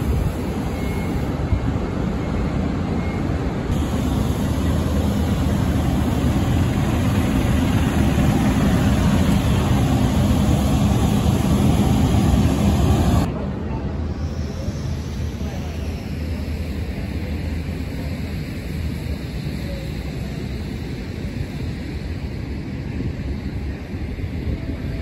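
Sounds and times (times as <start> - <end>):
large truck engine running: 0.0 - 13.3.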